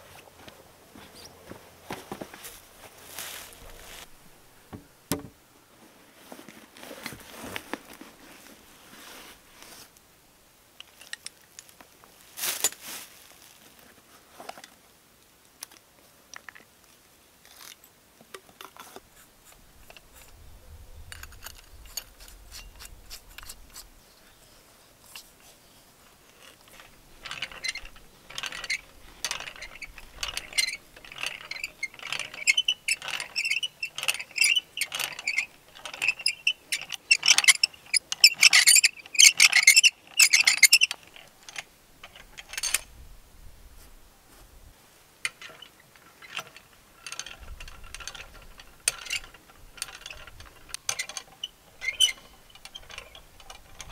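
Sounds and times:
tool handling clicks and knocks: 3.6 - 5.4, 25.1 - 43.0, 45.2 - 53.9.

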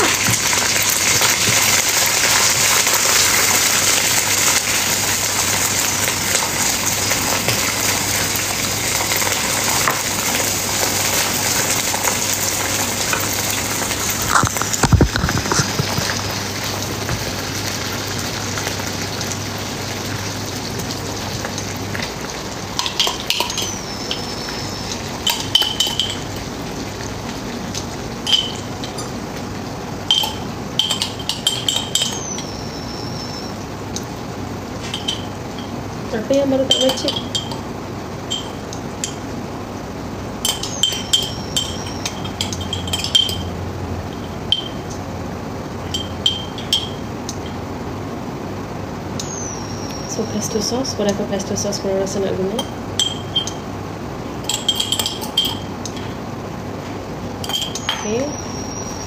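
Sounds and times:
sauce sizzling in a frying pan: 0.0 - 38.2
utensils and glass clinking: 22.8 - 24.6, 25.2 - 26.4, 28.2 - 29.2, 30.1 - 32.6, 34.8 - 35.8, 36.6 - 37.6, 38.3 - 39.2, 40.4 - 45.0, 45.9 - 47.6, 52.5 - 53.6, 54.4 - 56.2, 57.4 - 59.0.

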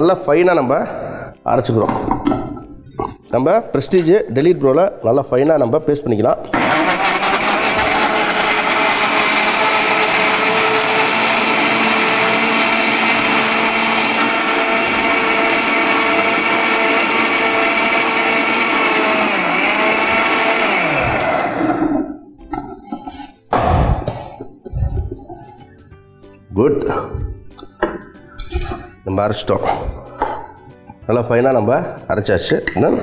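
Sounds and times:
mixer grinder running: 6.6 - 22.2.

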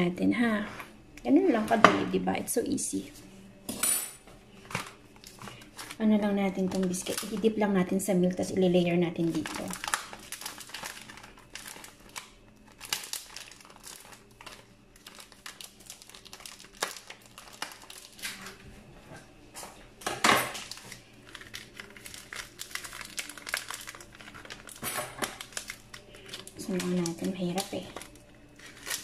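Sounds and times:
plastic packet crinkling: 4.7 - 7.6, 9.2 - 18.6, 20.5 - 29.0.

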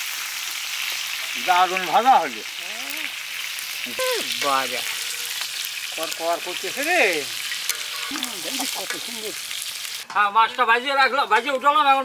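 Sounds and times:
fish sizzling in hot oil: 0.0 - 10.1
person's voice: 8.1 - 9.4.

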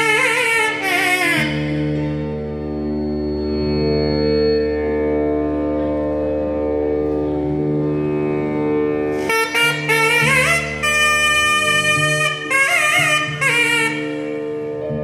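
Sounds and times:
reed instrument gliding melody: 0.0 - 15.0
steady drone: 0.0 - 15.0.

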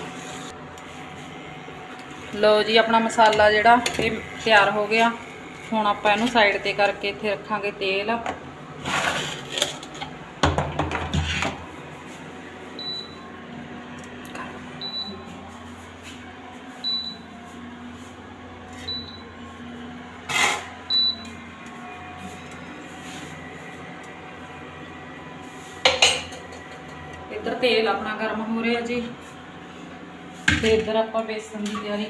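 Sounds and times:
cooktop high beeps: 12.8 - 13.2, 14.8 - 15.4, 16.8 - 17.3, 18.8 - 19.4, 20.8 - 21.4.

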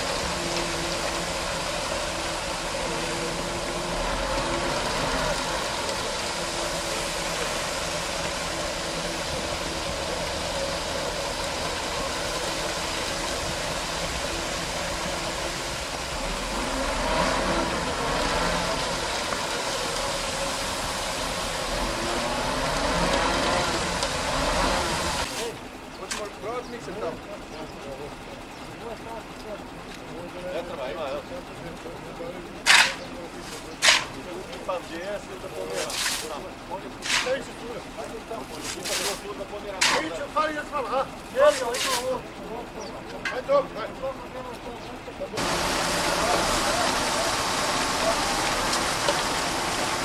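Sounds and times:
concrete mixer truck running: 0.0 - 50.0.

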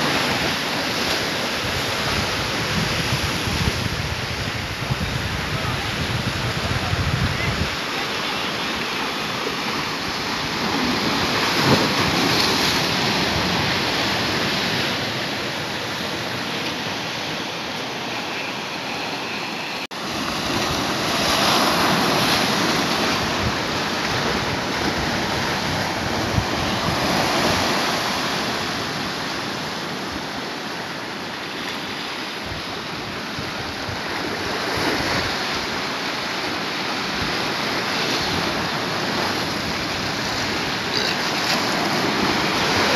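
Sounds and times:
sea surf washing over rocks: 0.0 - 42.9.

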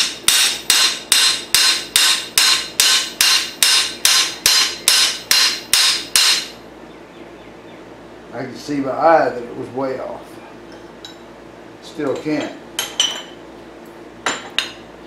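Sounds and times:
hammer striking steel: 0.0 - 6.6.

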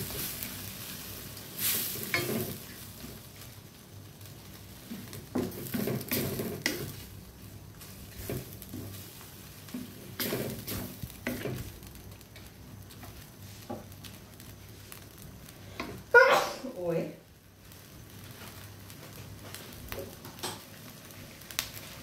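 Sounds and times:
wooden spatula scraping a wok: 0.0 - 3.5, 4.6 - 16.1
low sizzle from frying pan: 0.0 - 22.0.

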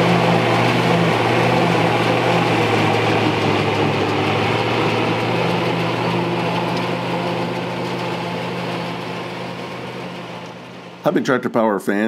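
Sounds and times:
forage harvester chopper rushing: 0.0 - 11.6
tractor diesel engine drone: 0.0 - 12.0.

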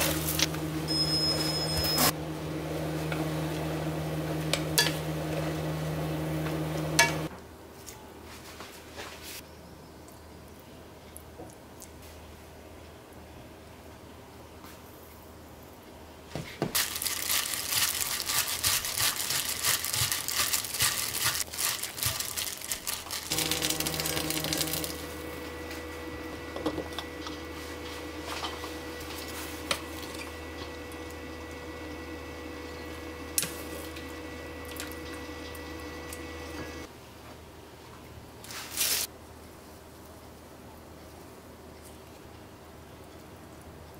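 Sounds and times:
dense crackle: 16.8 - 25.0.

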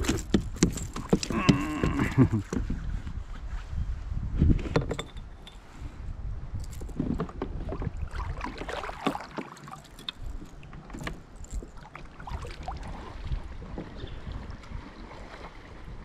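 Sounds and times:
clicks and knocks on plastic kayak: 0.0 - 2.8.

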